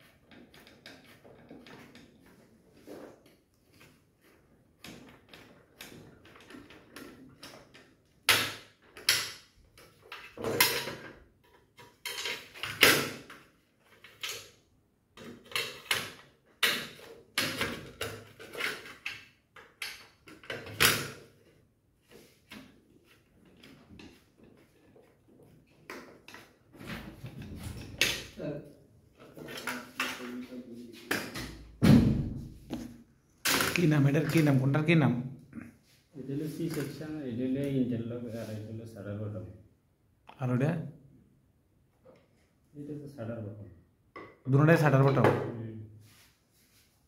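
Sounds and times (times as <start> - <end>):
metal frames knocking and scraping: 23.4 - 28.4.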